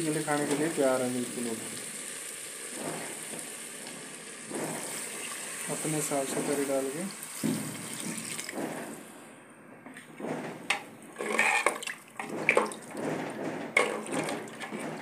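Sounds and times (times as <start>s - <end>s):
water pouring into a pot: 0.0s - 8.6s
ladle scraping and clinking pot: 10.7s - 15.0s.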